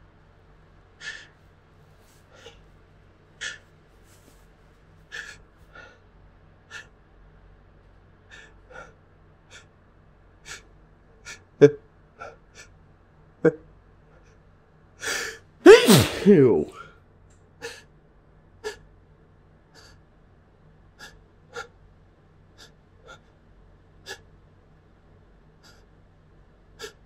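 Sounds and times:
person gasping before sneeze: 15.1s - 16.8s.

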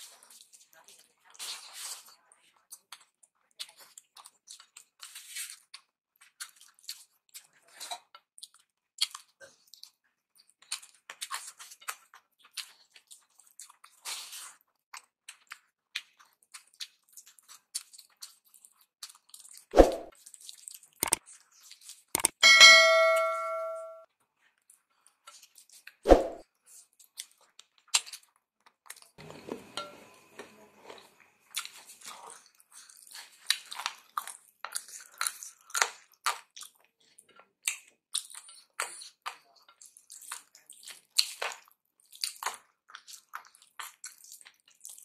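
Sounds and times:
wet squishing of food: 0.0s - 22.2s, 24.4s - 29.5s, 30.8s - 45.0s
sharp ringing clink: 22.4s - 24.0s
mouth smacking and chewing: 31.5s - 45.0s.

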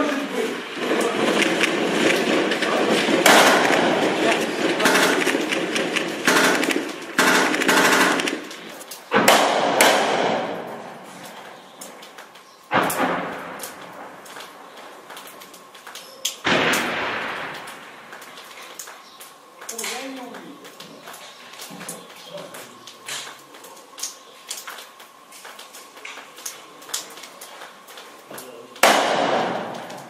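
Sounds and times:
automatic gunfire bursts: 0.7s - 11.0s, 28.8s - 30.0s
sharp gunshot reports with echo: 0.8s - 8.4s, 9.1s - 11.0s, 28.8s - 30.0s.

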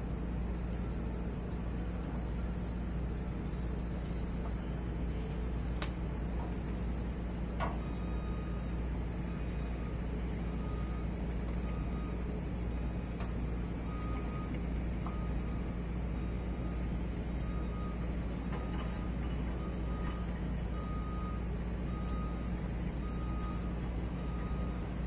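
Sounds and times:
faint clicks: 5.8s - 6.0s.

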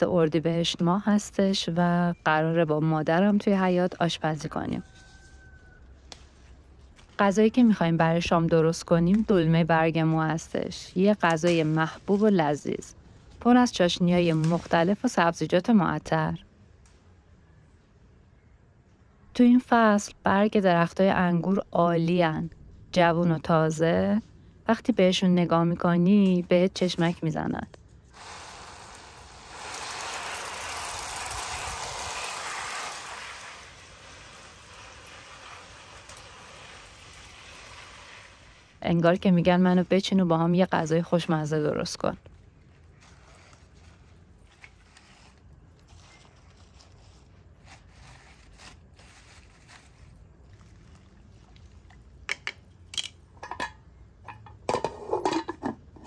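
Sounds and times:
hose spray hissing onto leaves: 28.2s - 38.6s
lid clattering on pot: 52.3s - 55.8s
wooden spoon clinking in metal pot: 52.3s - 55.8s.

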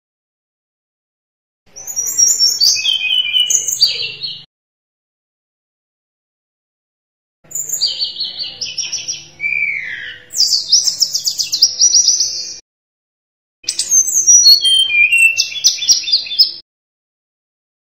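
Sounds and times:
bird singing whistles and trills: 1.7s - 4.5s, 7.5s - 12.6s, 13.7s - 16.6s.

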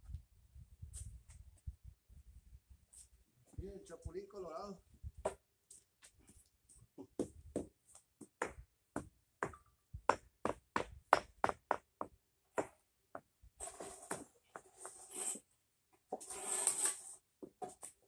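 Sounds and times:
mallet knocking concrete pavers: 8.4s - 13.3s.

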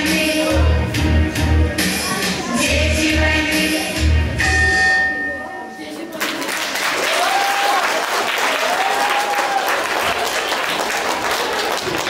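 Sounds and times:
children applauding: 6.2s - 12.0s
high drawn-out cheer: 6.6s - 12.0s.

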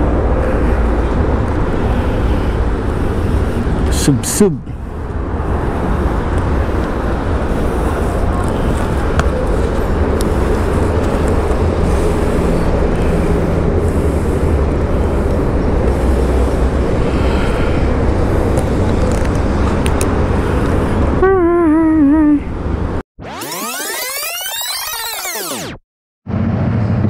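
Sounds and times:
road traffic rumble: 0.0s - 23.0s
warbling tone: 23.2s - 25.8s.

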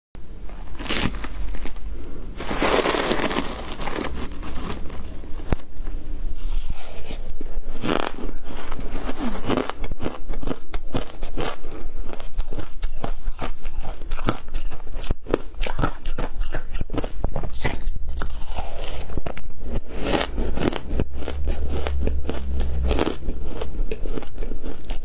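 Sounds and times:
ice crunching when chewed: 0.5s - 5.6s, 7.8s - 25.0s
metal spoon scraping bowl of ice: 2.4s - 5.2s.

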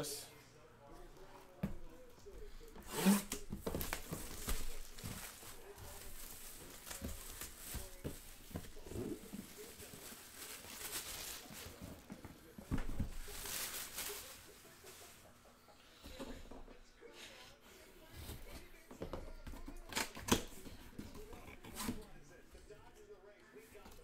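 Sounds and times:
rustling: 2.6s - 15.4s.

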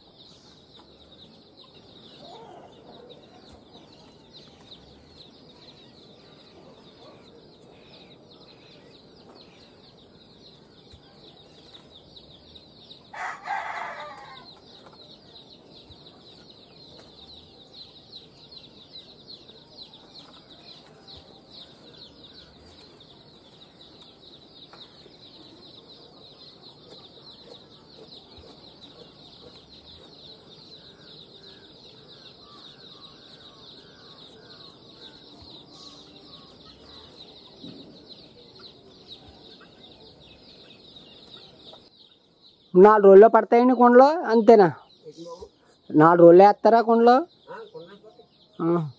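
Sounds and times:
faint bird calls: 1.6s - 11.8s, 19.9s - 41.9s
rooster crowing: 13.1s - 14.5s.

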